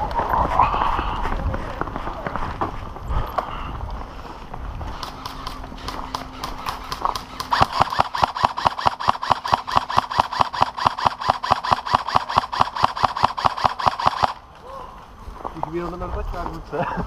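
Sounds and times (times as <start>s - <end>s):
airsoft gun firing full auto: 4.9s - 14.4s.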